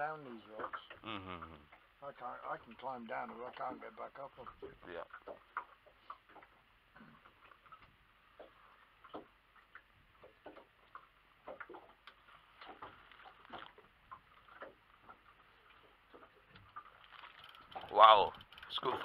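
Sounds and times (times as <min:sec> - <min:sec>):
faint small ticks and taps: 0:07.2 - 0:19.0.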